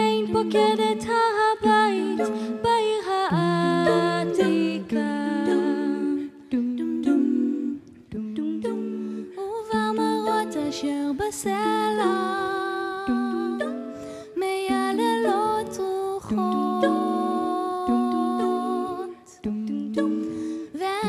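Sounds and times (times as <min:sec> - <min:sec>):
women singing close harmony: 0:00.0 - 0:21.0.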